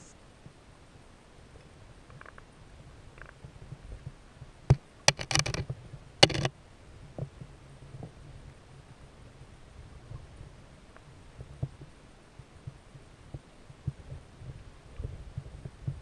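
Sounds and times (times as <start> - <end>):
muffled underwater knocks and clicks: 4.7 - 6.5.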